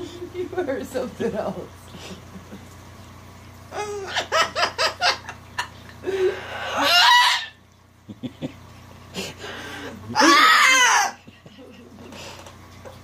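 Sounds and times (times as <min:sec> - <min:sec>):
cockatoo mimicking laughter: 0:03.7 - 0:07.6, 0:09.3 - 0:12.2.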